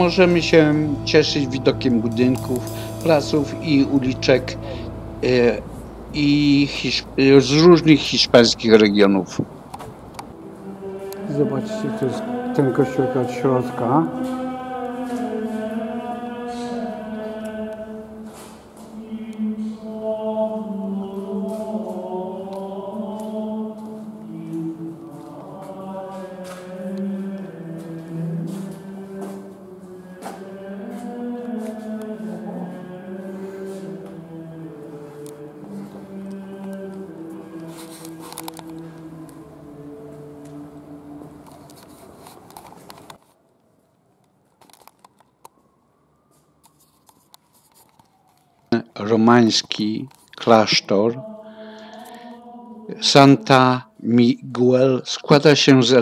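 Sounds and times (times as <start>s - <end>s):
men chanting in long notes: 0.0s - 9.0s, 10.3s - 41.5s, 49.0s - 56.0s
faint steady tones: 0.0s - 9.4s.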